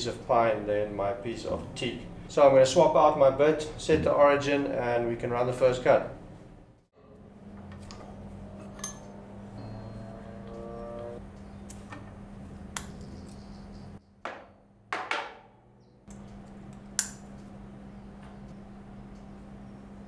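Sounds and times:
steady low hum: 0.0 - 20.0
metal tools clinking: 8.7 - 10.3.

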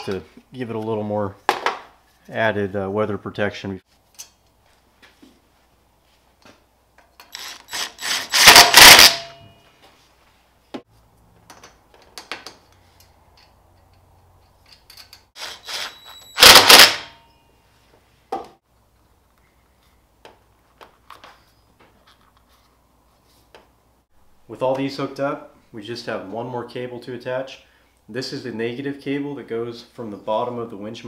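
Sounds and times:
small knocks and handling noises: 19.3 - 23.8.

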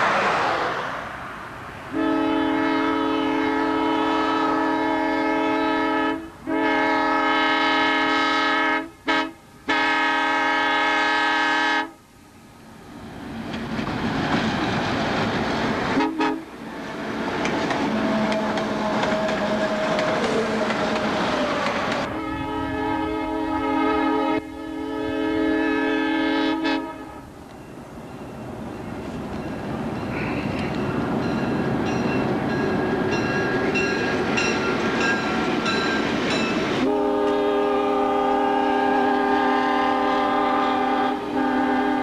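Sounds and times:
locomotive engines and wheels passing: 0.0 - 4.8, 12.0 - 38.0
locomotive air horn blasts: 1.9 - 12.0, 16.0 - 16.5, 22.0 - 27.3, 36.8 - 42.0.

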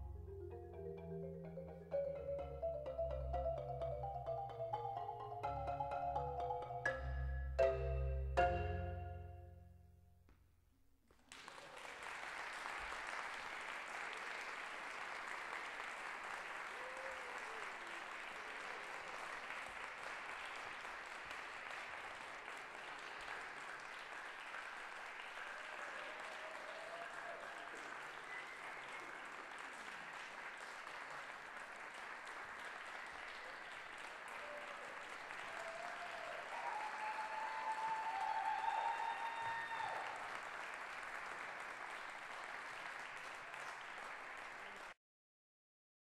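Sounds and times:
audience applause: 11.2 - 45.0.

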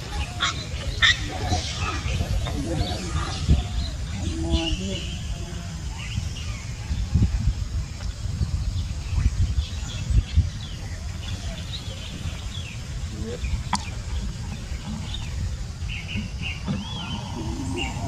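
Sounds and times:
steady low rumble: 0.0 - 18.0
lower wavering call: 16.8 - 18.0.

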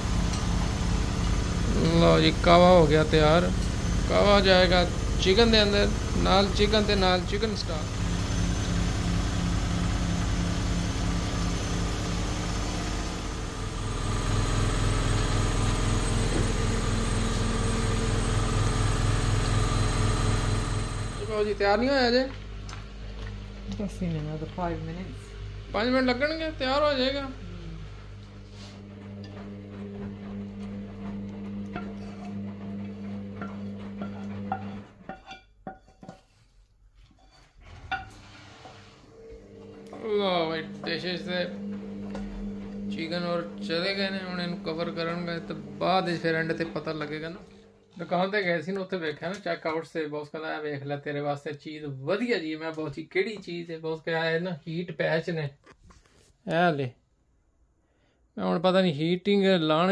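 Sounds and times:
steady background hum: 0.0 - 14.4
clothes dryer humming: 0.0 - 35.2, 37.6 - 49.4
wooden spatula scraping frying pan: 33.4 - 39.0.

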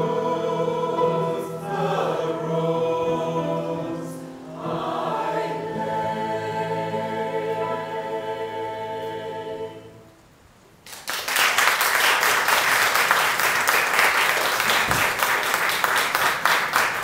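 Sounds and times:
choir singing held chord: 0.0 - 10.2
audience applause: 10.9 - 17.0.

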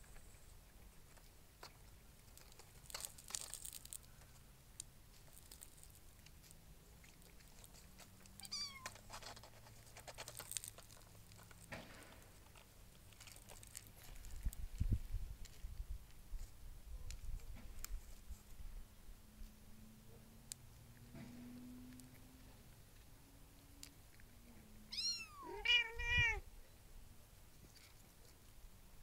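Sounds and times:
paws scratching cardboard: 7.0 - 14.2
kitten mewing: 8.4 - 9.0, 24.9 - 26.4.

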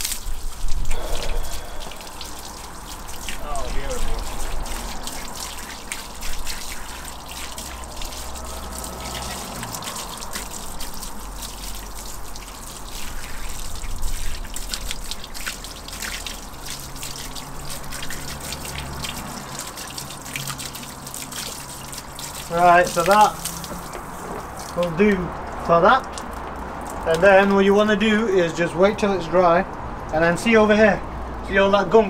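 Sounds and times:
hose spraying water on wheel: 0.0 - 27.2
water splashing on paving: 0.0 - 30.9.

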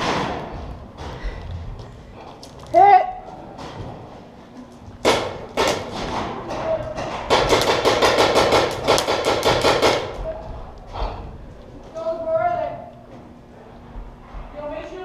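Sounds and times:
paintball marker shots echoing: 7.3 - 10.2.

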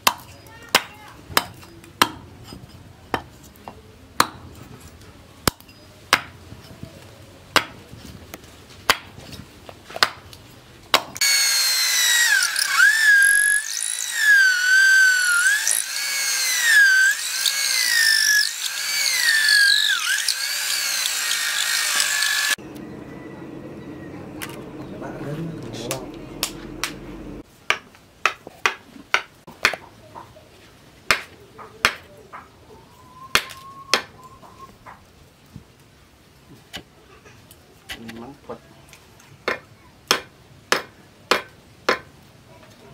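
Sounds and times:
hatchet chopping wood: 0.0 - 2.2, 4.2 - 4.4, 5.4 - 6.4, 7.5 - 7.8, 8.8 - 9.2, 9.9 - 10.2, 10.9 - 22.6, 27.6 - 29.9, 31.1 - 32.1, 33.3 - 34.1, 39.4 - 42.1
electric drill boring into wood: 11.2 - 22.6.

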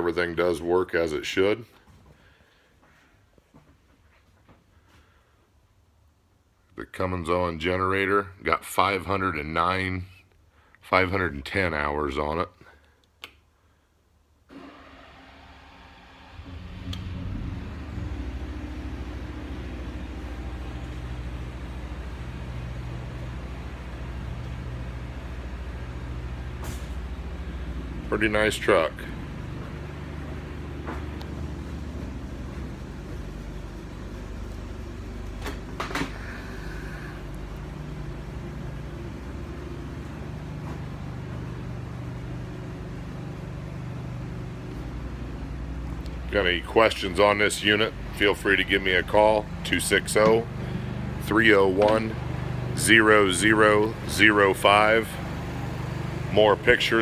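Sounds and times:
generator engine humming: 14.5 - 57.0.

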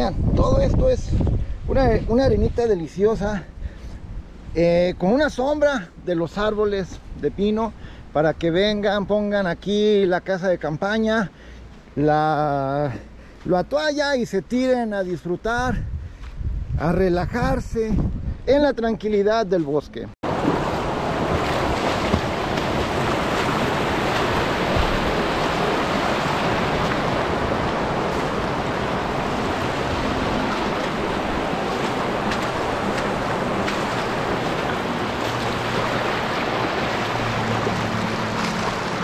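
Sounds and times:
river water rushing: 20.3 - 39.0.

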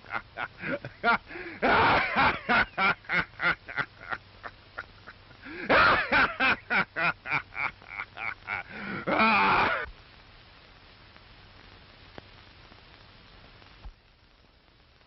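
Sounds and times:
person laughing: 0.0 - 9.9.

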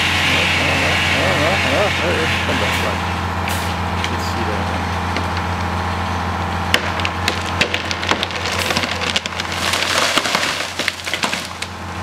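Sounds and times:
tree trunk cracking: 6.7 - 11.9
crash of breaking branches: 6.8 - 11.8.

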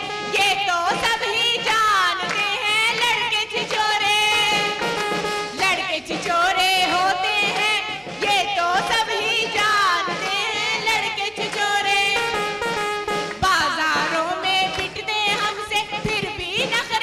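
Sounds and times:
woman singing ornamented lines: 0.0 - 2.2
hand clapping: 1.6 - 9.0, 11.4 - 16.3.

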